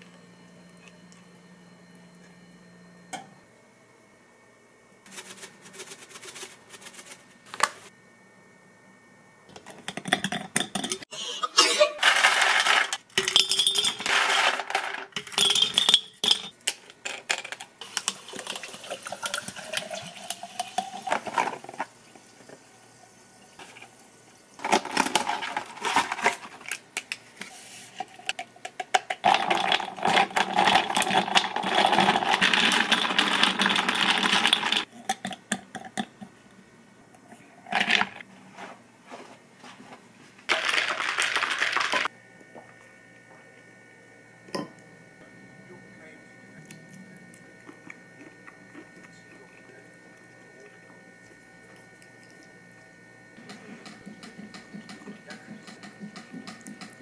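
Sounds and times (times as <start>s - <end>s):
ice rattling in bottle: 12.0s - 16.4s, 29.2s - 34.9s, 40.5s - 42.1s
ice cubes clattering into bottle: 12.0s - 16.5s, 24.6s - 26.6s, 29.1s - 34.9s, 40.5s - 42.1s.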